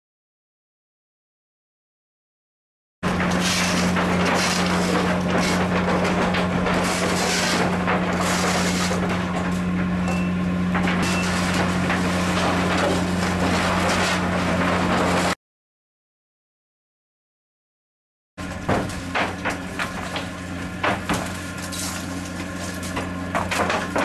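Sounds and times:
low hum of ship machinery: 0:03.0 - 0:15.4, 0:18.4 - 0:24.0.

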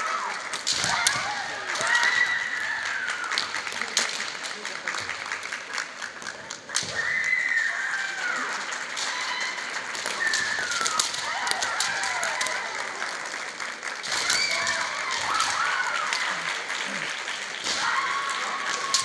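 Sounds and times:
bamboo swords clacking: 0:00.5 - 0:02.0.

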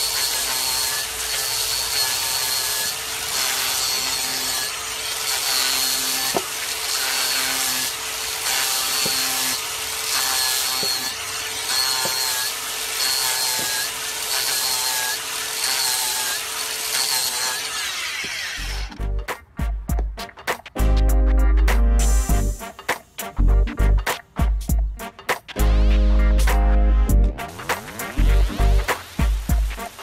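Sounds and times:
angle grinder grinding wood: 0:00.0 - 0:19.2, 0:27.3 - 0:30.0.

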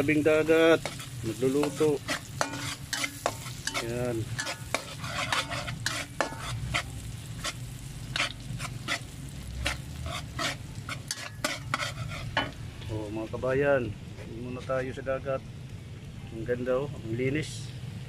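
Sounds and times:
metal spatula scraping a wok: 0:00.0 - 0:12.6
onion and garlic sizzling in oil: 0:00.0 - 0:18.0.

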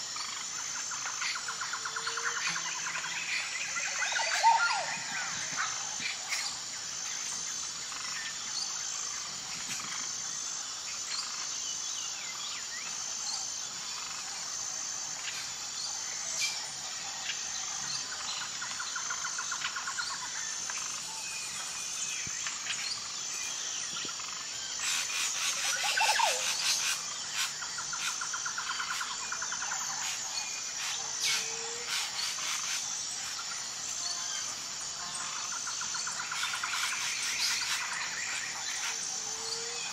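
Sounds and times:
insect chorus: 0:00.0 - 0:39.9
bird calls and chirps: 0:00.2 - 0:06.6.

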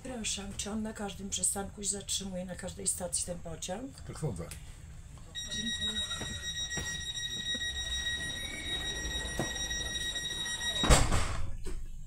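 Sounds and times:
train door warning tone: 0:05.4 - 0:11.3
doors shutting thump: 0:10.7 - 0:11.5.

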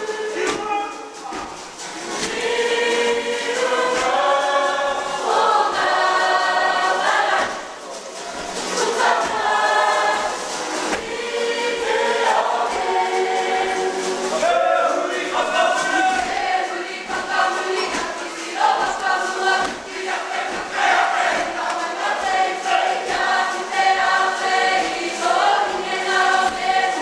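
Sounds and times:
group singing in unison: 0:00.0 - 0:27.0.

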